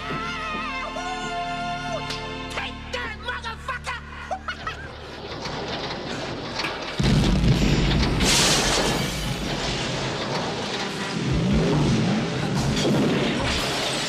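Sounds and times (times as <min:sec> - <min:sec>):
heavy low rumble: 0:05.0 - 0:14.0.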